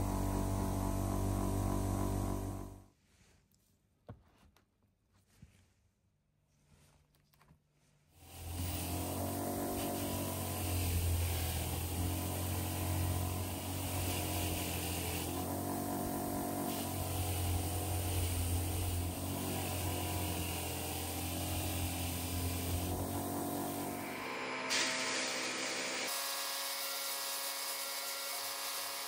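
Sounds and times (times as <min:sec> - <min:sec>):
power tool motor humming: 0:00.0 - 0:02.8, 0:08.2 - 0:29.0
hiss: 0:08.2 - 0:26.4.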